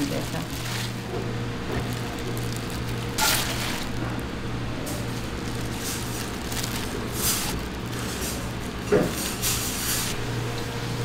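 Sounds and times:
gloves squishing wet leaves: 0.0s - 10.2s
steady low hum: 0.0s - 11.0s.

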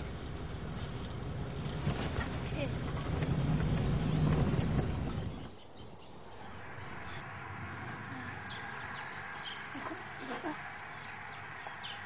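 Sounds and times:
low rumbling noise: 0.0s - 12.0s
outdoor ambience: 0.0s - 12.0s
birds chirping: 2.6s - 12.0s.

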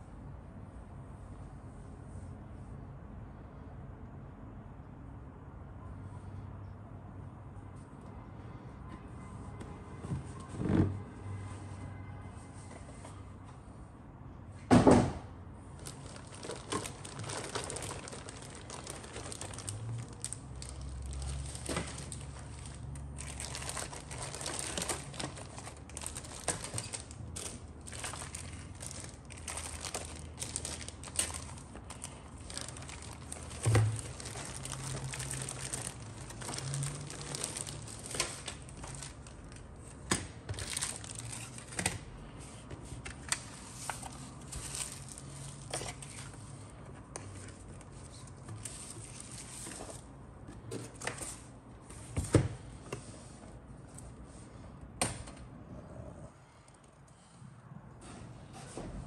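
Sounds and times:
plastic bags crinkling: 15.8s - 41.8s, 43.2s - 46.2s.

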